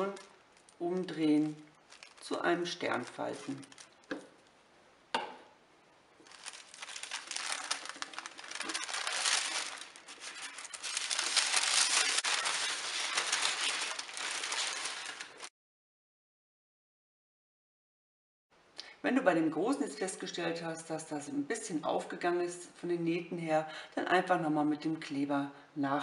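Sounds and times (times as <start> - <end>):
paper rustling and crinkling: 0.0 - 4.3, 6.2 - 15.5.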